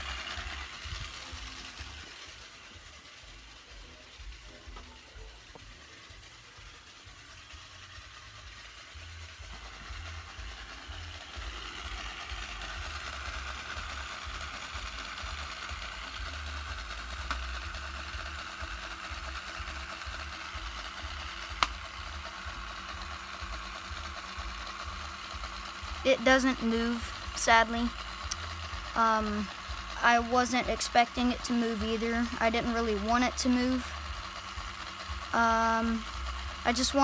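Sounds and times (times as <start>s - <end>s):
plastic motor model whirring: 0.0s - 37.0s.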